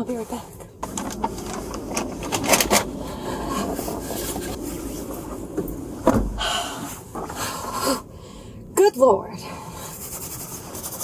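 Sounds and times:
dull thump: 5.5 - 7.4.

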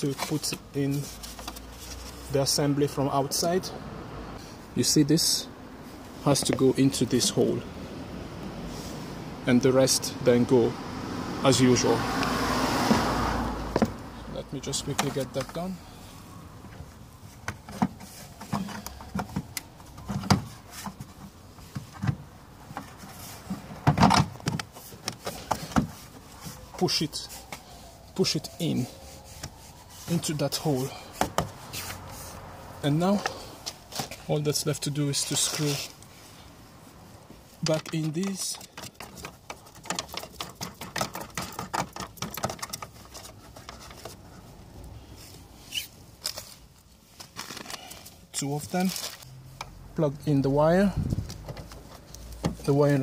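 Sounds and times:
rustling of wiring harness: 0.0 - 2.6, 16.8 - 49.6, 50.6 - 53.0.

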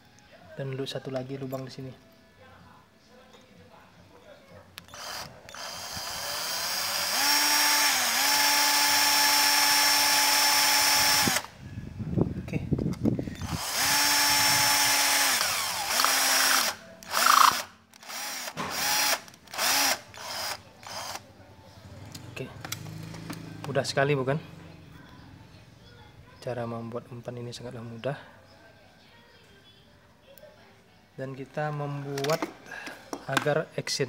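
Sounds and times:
cordless drill whining: 4.9 - 11.5, 13.3 - 21.2.

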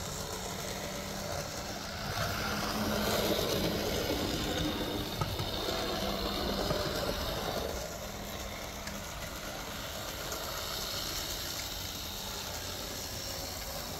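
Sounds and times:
model train motor whirring: 0.0 - 13.9.

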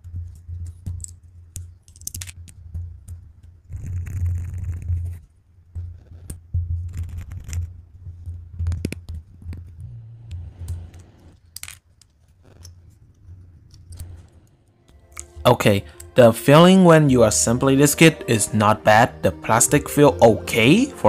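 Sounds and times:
plastic parts clicking and snapping: 0.2 - 3.2, 11.4 - 12.8
low rumbling handling noise: 4.8 - 11.4, 12.3 - 15.5.

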